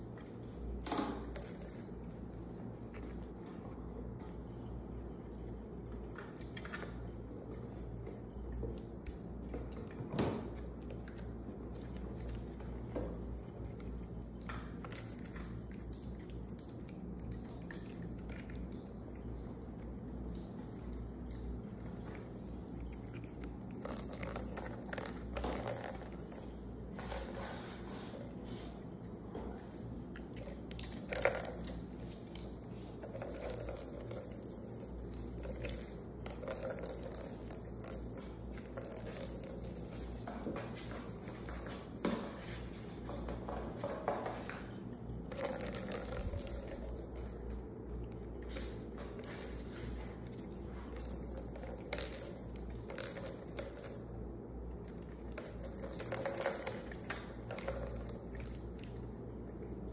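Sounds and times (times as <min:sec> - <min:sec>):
faint high chirps: 0:00.0 - 0:02.1, 0:04.2 - 0:09.6, 0:11.5 - 0:54.3, 0:55.3 - 0:59.9
plastic balls rattling in track: 0:30.6 - 0:42.0, 0:49.2 - 0:59.5.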